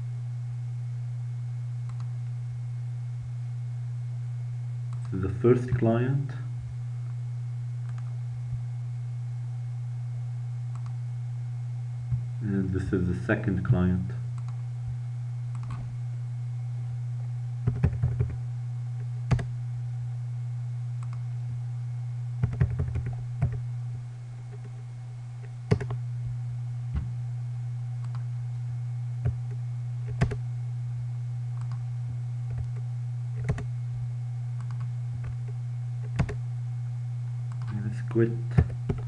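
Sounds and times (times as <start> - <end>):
steady low hum: 0.0 - 39.0
keyboard typing: 17.6 - 18.4, 22.4 - 23.6, 25.7 - 26.0, 33.4 - 33.7, 36.0 - 36.4.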